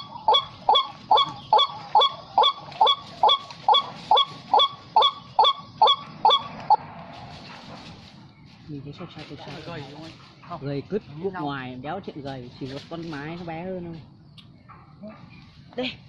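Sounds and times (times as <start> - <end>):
waterhen calling: 0.0 - 6.8.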